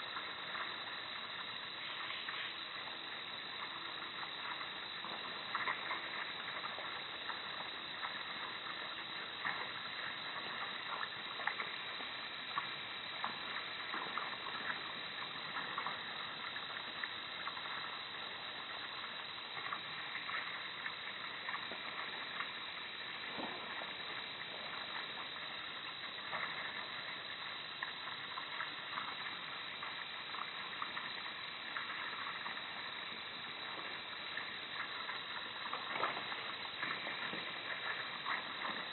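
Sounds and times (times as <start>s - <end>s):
faint ticks: 0.0s - 38.9s
microphone hiss: 0.0s - 38.9s.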